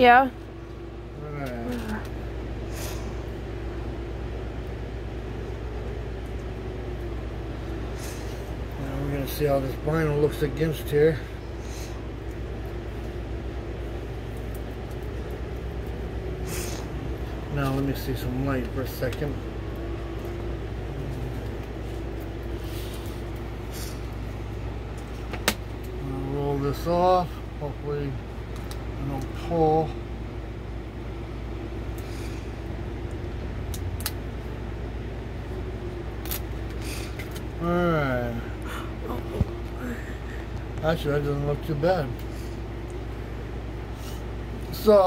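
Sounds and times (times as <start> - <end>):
low machine hum: 0.0 - 45.0.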